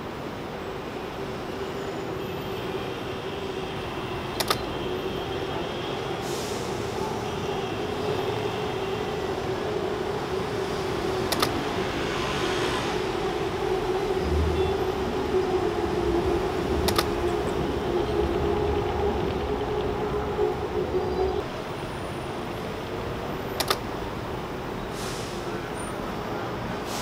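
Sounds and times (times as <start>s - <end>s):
city traffic noise: 0.0s - 27.0s
sharp clicks: 4.4s - 4.7s, 11.3s - 11.6s, 16.8s - 17.2s, 23.6s - 23.8s.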